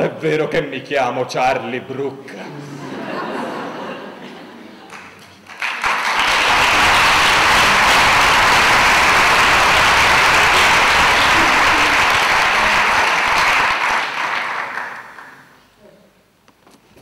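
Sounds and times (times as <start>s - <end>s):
audience applauding: 4.9s - 15.5s.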